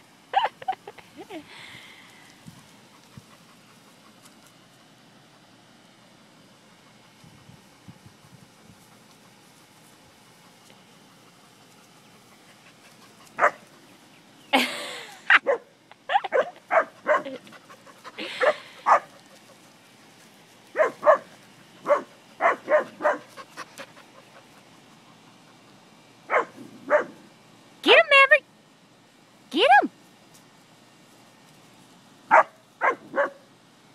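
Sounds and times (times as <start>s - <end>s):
dog barking: 13.4s - 13.6s, 15.4s - 17.4s, 18.4s - 19.1s, 20.8s - 23.3s, 26.3s - 27.2s, 32.3s - 33.4s.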